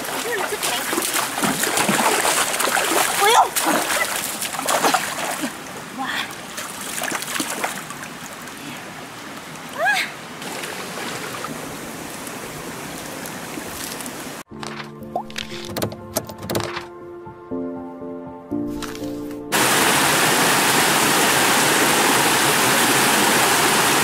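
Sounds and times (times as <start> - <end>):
water splashing: 0.0 - 9.8, 10.4 - 15.7
stream running over stones: 0.0 - 14.5, 18.7 - 24.0.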